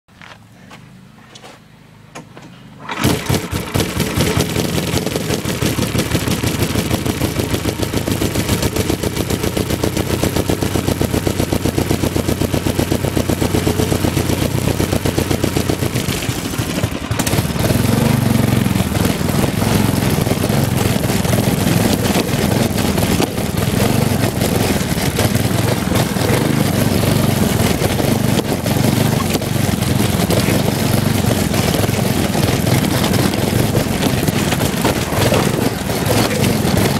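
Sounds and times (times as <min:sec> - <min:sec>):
go-kart engine running: 0:02.8 - 0:36.9.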